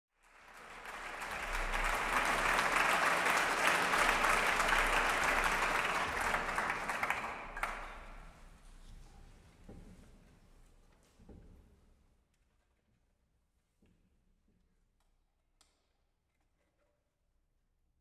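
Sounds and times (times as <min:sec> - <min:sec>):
audience applauding: 0:00.2 - 0:08.3.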